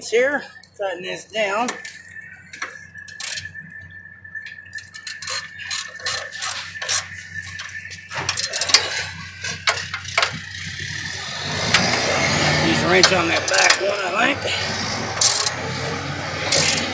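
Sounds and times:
metal clinks: 4.4s - 10.6s.

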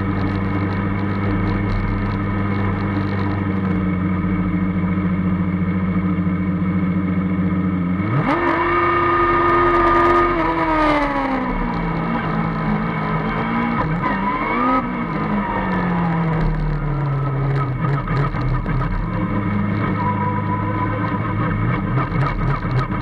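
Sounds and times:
race car drivetrain revving: 8.0s - 23.0s.

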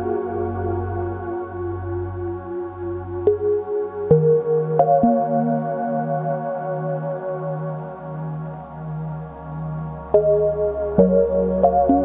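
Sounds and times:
soft ambient instrumental music: 0.0s - 12.0s.

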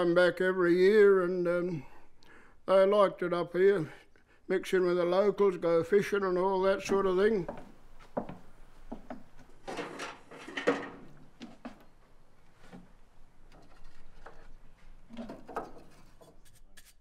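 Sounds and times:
wooden scrapes: 9.6s - 17.0s.

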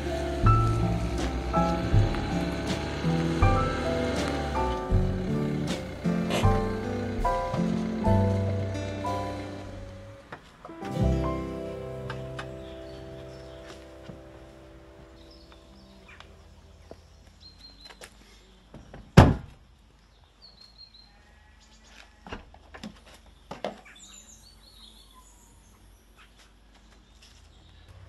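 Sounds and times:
car door shutting: 0.5s - 10.2s
birds chirping faintly: 6.6s - 19.1s.

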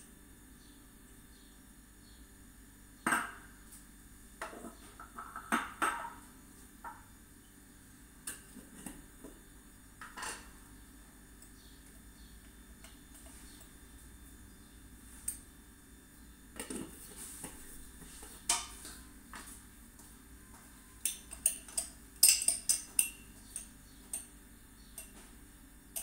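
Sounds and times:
teaspoon clinking against glass jars: 21.0s - 24.3s.

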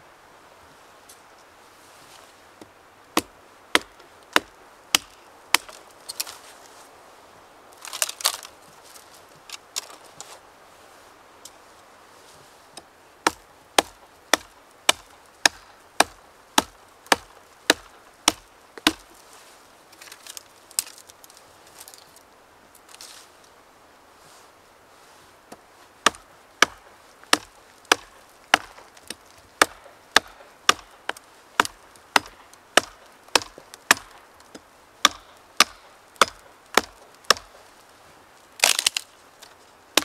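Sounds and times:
twigs crackling and rustling: 0.8s - 23.6s, 24.2s - 40.0s
axe chopping into a branch: 3.2s - 5.8s, 13.3s - 19.1s, 26.0s - 37.6s, 38.6s - 39.1s.

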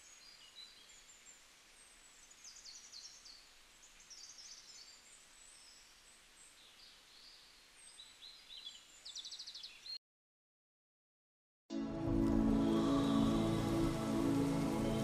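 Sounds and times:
low hiss: 0.0s - 9.7s, 12.2s - 15.0s.

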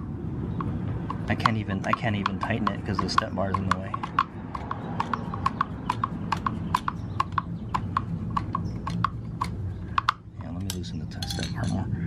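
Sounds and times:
ratchet wrench clicking: 1.0s - 10.2s.

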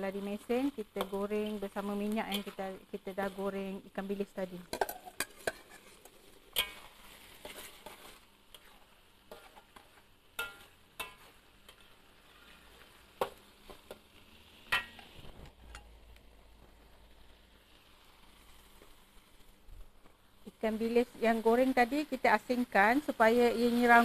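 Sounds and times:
paste sizzling in oil: 0.0s - 24.0s
metal spatula clinking on pan: 4.7s - 5.9s, 6.5s - 6.9s, 10.4s - 11.9s, 14.7s - 15.0s.

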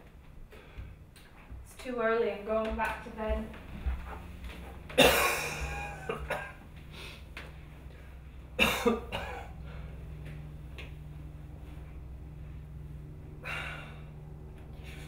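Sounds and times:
low steady hum: 0.0s - 15.0s
person coughing: 5.0s - 6.6s, 8.6s - 9.6s.

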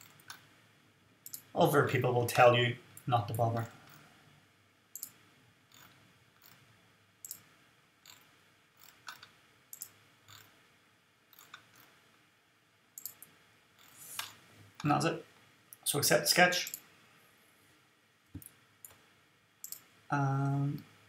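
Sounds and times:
computer mouse clicks: 1.2s - 1.5s, 4.9s - 6.6s, 7.2s - 10.5s, 11.3s - 12.0s, 13.0s - 14.9s, 16.6s - 16.9s, 19.6s - 19.9s.

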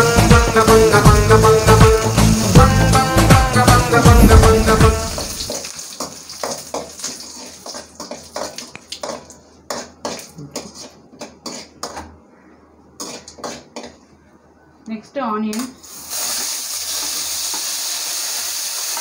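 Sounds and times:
metal spoon scraping a pan: 6.5s - 12.0s.

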